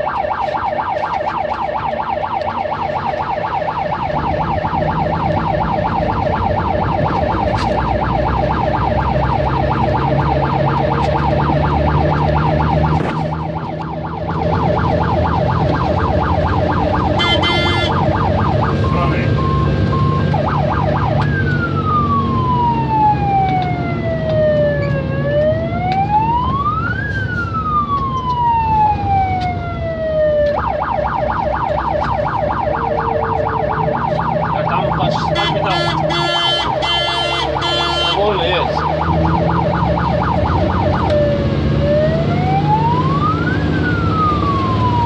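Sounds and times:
fire engine siren: 0.0 - 45.0
horn blast: 17.2 - 18.0, 35.2 - 38.2.

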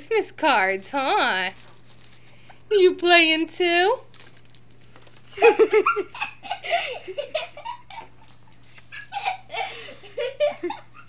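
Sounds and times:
people laughing and giggling: 5.3 - 11.0.

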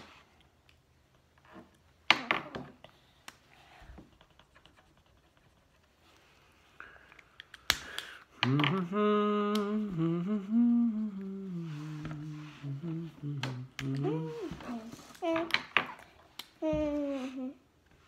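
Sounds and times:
person humming a tune: 8.4 - 15.5.

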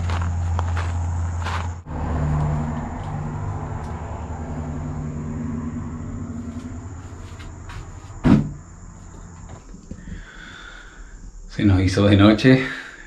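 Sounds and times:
vehicle engine hum: 0.0 - 11.4
high insect drone: 0.0 - 13.0
sharp knock: 8.2 - 8.6.

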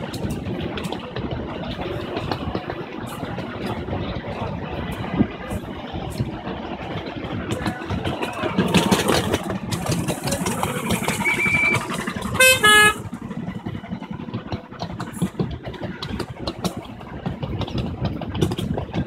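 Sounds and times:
train wheels clicking over rail joints: 0.0 - 19.0
locomotive toots: 6.6 - 15.4.

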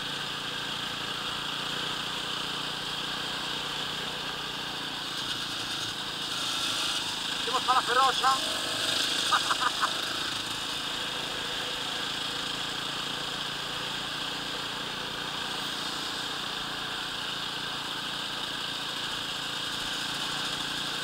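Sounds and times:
motorcycle engine cruising: 0.0 - 21.0.

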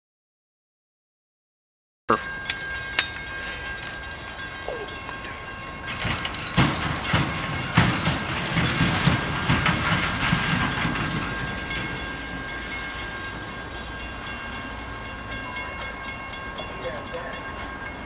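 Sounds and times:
faint steady high tones: 2.1 - 6.1
train wheels clicking over rail joints: 2.2 - 18.0.

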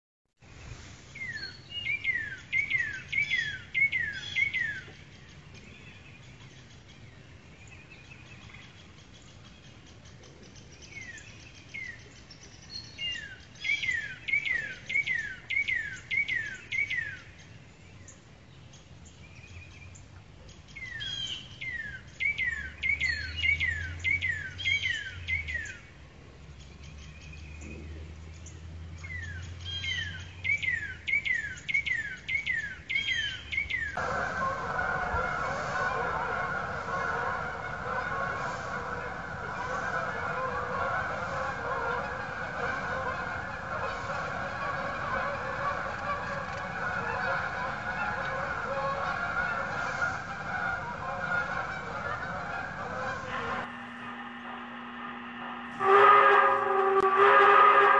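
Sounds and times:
faint low hum: 34.0 - 57.0.

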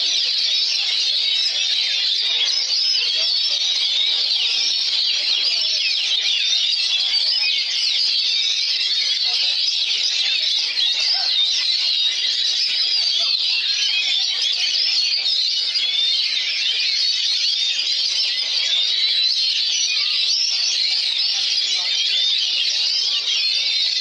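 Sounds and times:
songbird singing: 0.0 - 17.1
chorus of songbirds: 0.0 - 24.0.

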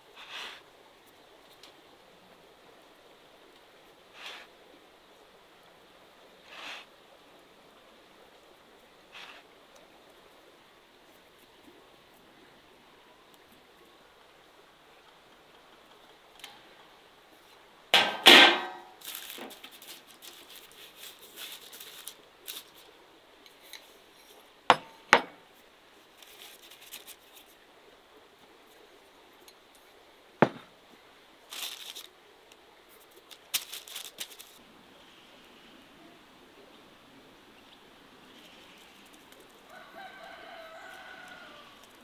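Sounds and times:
paper rustling: 19.0 - 22.9, 26.2 - 27.5, 31.5 - 32.1, 32.9 - 34.6.

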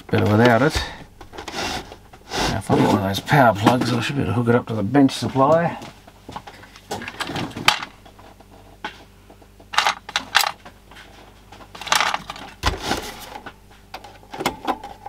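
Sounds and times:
plugs rattling in plastic box: 9.7 - 10.6, 11.8 - 12.6.

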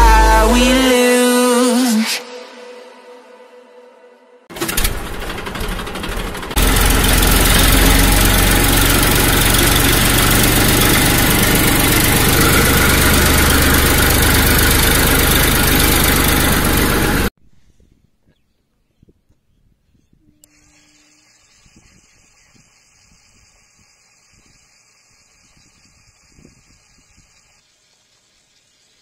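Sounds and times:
tractor engine running: 4.5 - 17.3.

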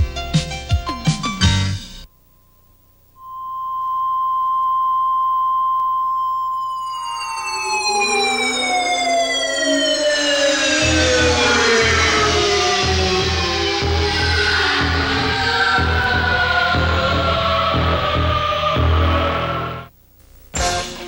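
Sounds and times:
steady test tone: 2.0 - 19.9
electronic tones gliding downward: 3.2 - 19.9
low pulsing beat: 10.7 - 19.8.

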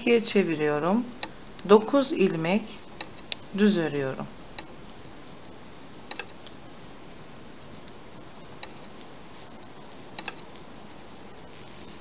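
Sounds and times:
metal knitting needles clicking: 3.0 - 3.5, 5.4 - 6.6, 8.6 - 10.7.

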